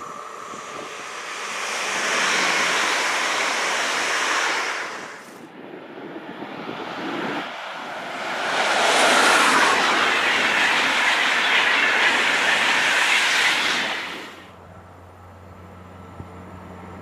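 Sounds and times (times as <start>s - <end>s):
train passing at speed: 0.0s - 17.0s.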